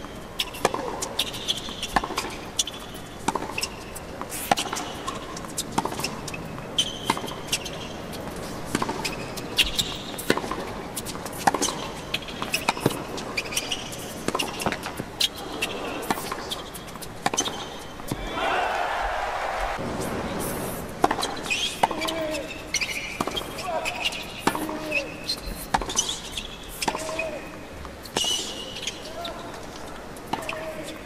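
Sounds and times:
shoes squeaking on court: 0.0 - 31.0
racket hitting tennis ball: 0.4 - 25.0.

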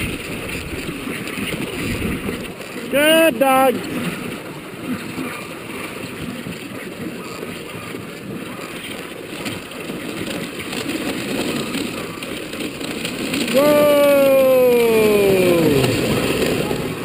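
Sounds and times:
wind on microphone: 0.0 - 2.9
sled runners hissing over snow: 0.0 - 17.0.

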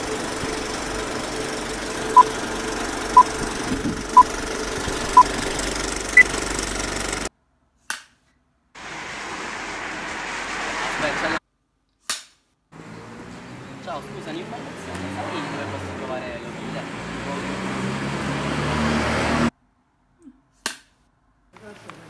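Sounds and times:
machine running hum: 0.0 - 7.3.

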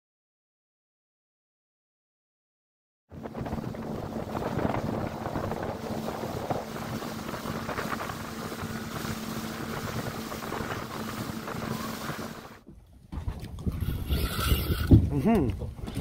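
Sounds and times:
motorboat engine drone: 3.1 - 12.7
wind on microphone: 3.1 - 16.0
water rushing: 3.2 - 16.0.

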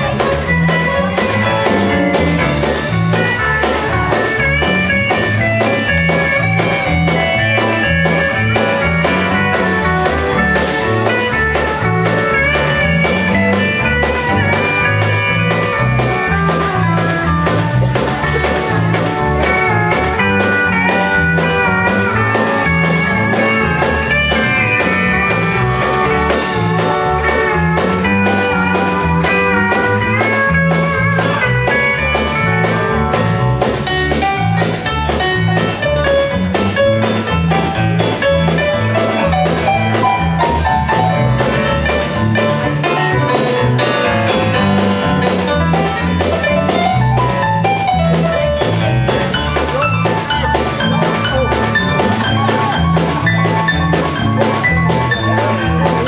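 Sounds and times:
country dance band playing polka: 0.0 - 56.0.

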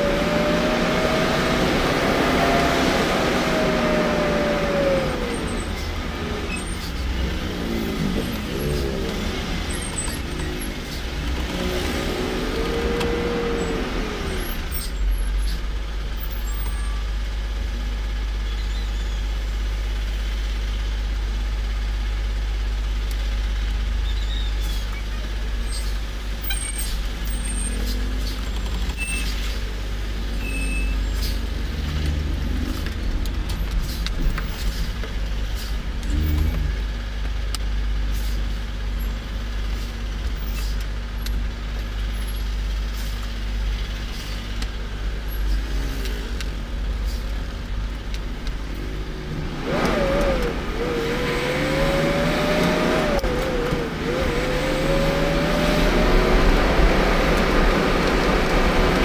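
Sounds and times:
cars passing: 0.0 - 15.0, 26.2 - 37.3, 42.6 - 59.0.

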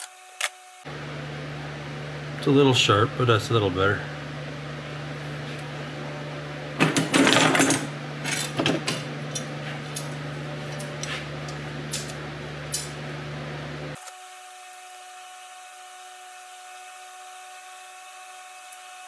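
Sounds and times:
low hum: 0.9 - 14.0
metal parts clattering on workbench: 6.8 - 9.1.

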